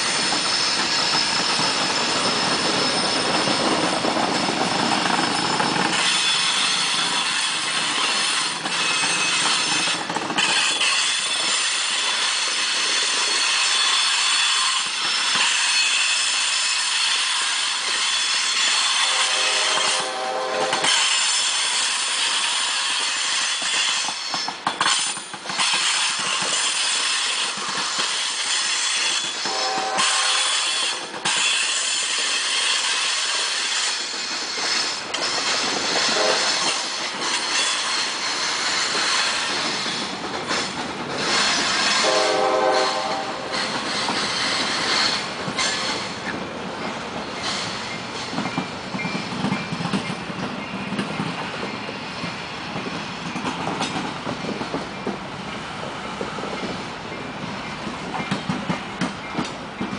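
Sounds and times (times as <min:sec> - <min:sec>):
freight train wheels rumbling: 0:00.0 - 0:59.9
high-pitched wheel squeal: 0:00.2 - 0:16.5.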